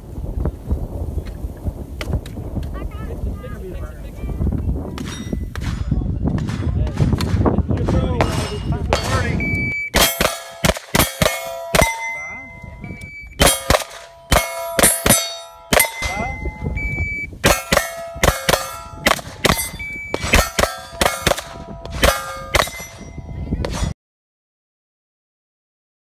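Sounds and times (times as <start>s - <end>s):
steel target plate clanging: 5.0s - 6.7s, 7.9s - 9.4s, 10.0s - 24.0s
shot timer beep: 9.2s - 23.3s
rapid gunshots: 10.0s - 12.0s, 13.4s - 16.3s, 17.4s - 23.0s.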